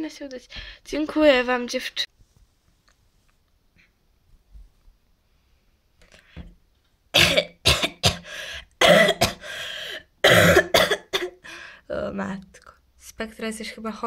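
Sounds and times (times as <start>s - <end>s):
person coughing hard: 7.2s - 9.6s, 10.2s - 11.4s.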